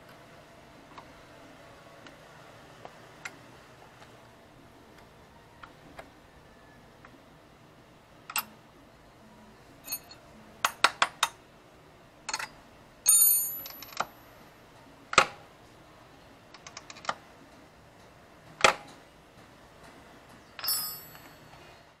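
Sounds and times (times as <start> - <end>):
ringing metal clinks: 9.8 - 10.2, 13.1 - 14.0, 20.6 - 21.7
metallic clicks and clanks: 12.3 - 14.1.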